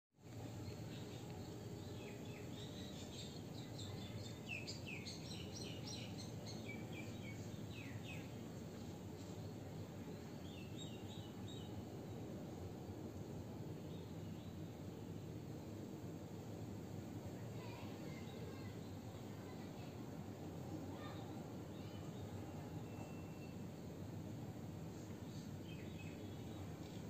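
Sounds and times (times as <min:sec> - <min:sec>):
low background noise: 0:00.2 - 0:27.0.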